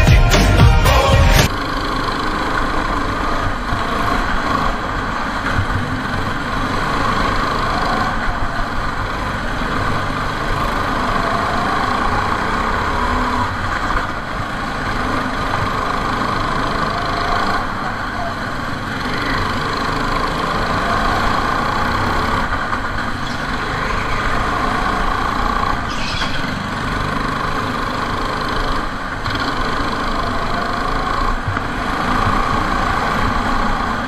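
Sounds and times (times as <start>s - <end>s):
go-kart engines buzzing: 0.0s - 34.0s.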